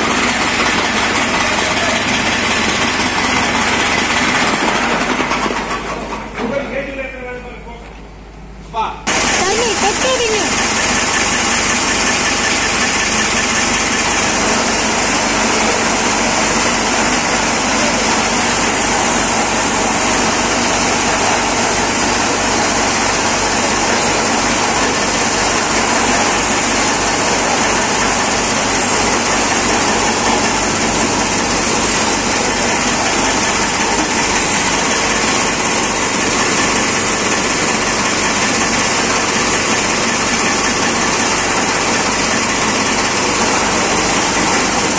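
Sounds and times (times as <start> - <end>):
tractor engine running: 0.0 - 6.4, 9.1 - 44.9
chaff cutter chopping fodder: 9.1 - 44.9.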